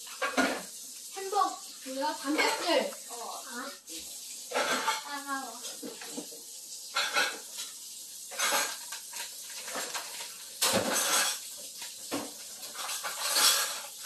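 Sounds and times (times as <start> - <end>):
dishes and utensils clattering: 0.0 - 0.8, 2.2 - 3.0, 4.4 - 14.0.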